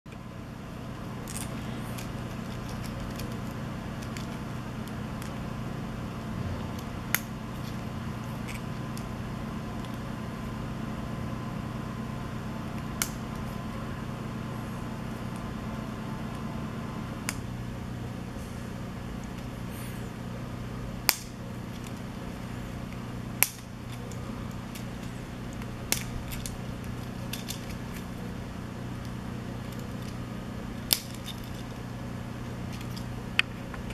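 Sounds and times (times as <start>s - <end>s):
steady low hum: 0.1s - 33.9s
plastic pieces clicking: 1.2s - 5.4s
plastic pieces snapping together: 21.1s - 21.9s, 23.4s - 23.7s.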